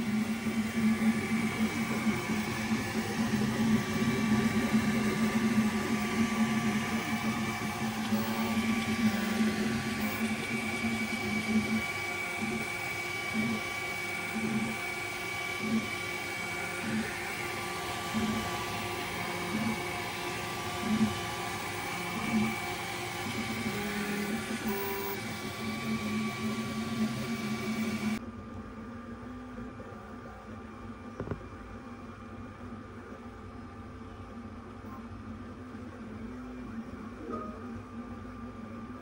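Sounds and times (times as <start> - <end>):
stepper motors humming: 0.0 - 28.2.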